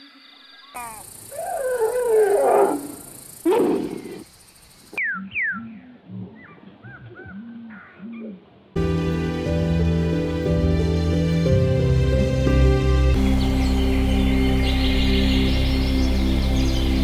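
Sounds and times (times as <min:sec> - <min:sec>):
animal wavering call: 0:00.8 - 0:04.2
short low animal calls: 0:00.8 - 0:04.2.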